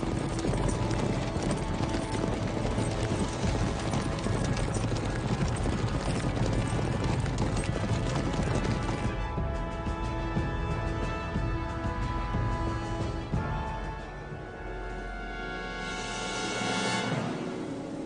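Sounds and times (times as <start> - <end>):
horses galloping on dirt: 0.0 - 13.7.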